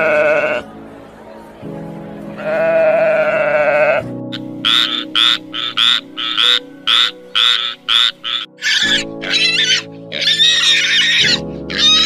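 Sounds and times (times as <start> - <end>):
pigs grunting and squealing: 0.0 - 0.6, 2.4 - 12.0
soft background music: 0.0 - 12.0
frog croaking: 2.5 - 12.0.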